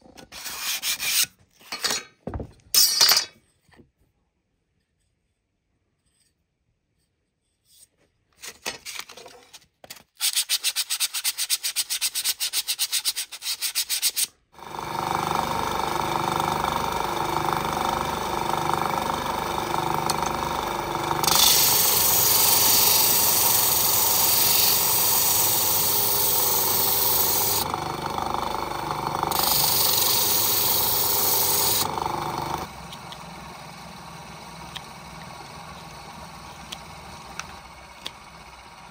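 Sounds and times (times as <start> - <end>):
disc sander motor running: 14.6 - 38.9
wood sanding hiss: 21.2 - 27.6, 29.4 - 31.9.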